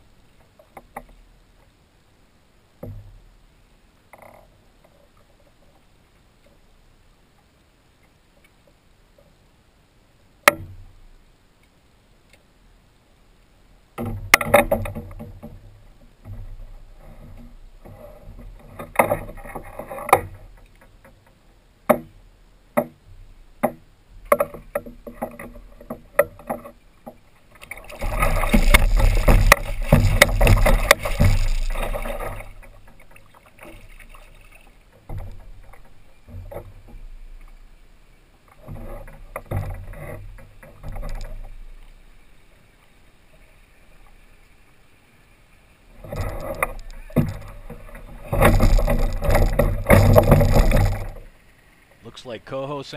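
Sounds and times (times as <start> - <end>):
knocks against kayak hull: 2.8 - 3.2, 10.5 - 10.8, 21.9 - 22.2, 22.8 - 34.1, 46.0 - 51.2
fish thrashing and splashing: 27.6 - 36.8, 46.0 - 51.3.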